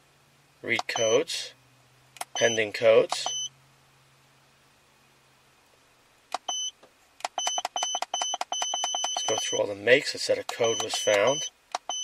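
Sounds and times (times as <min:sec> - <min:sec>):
electronic device beeping: 0:00.8 - 0:01.2, 0:02.2 - 0:03.5, 0:06.4 - 0:09.7, 0:10.5 - 0:12.0.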